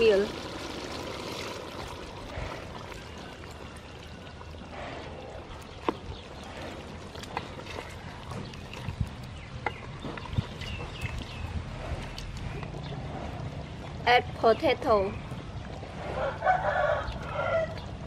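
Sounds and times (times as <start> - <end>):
liquid pouring into a pot: 0.0 - 4.4.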